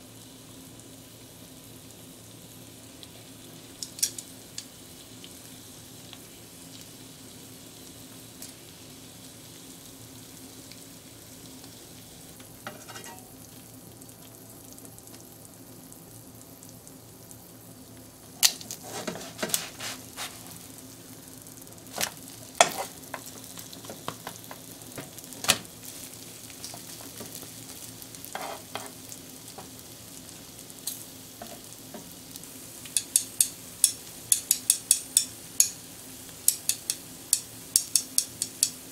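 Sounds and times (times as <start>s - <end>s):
pancakes and bacon sizzling: 0.0s - 38.9s.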